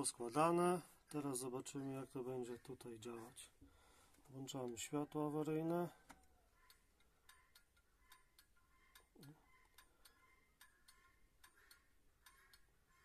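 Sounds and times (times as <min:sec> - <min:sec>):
flasher relay ticking: 0:04.3 - 0:13.0.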